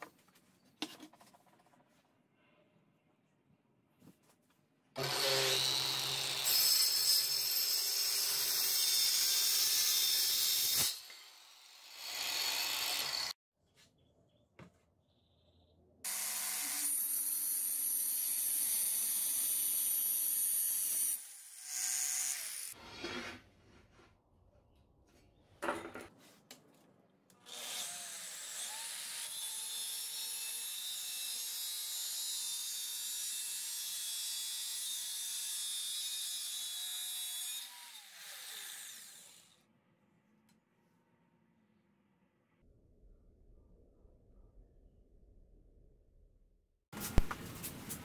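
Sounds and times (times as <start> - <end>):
knocks and handling noises: 0.0 - 2.1, 25.6 - 26.9
angle grinder cutting metal: 5.0 - 13.4, 16.1 - 22.8, 27.5 - 39.5.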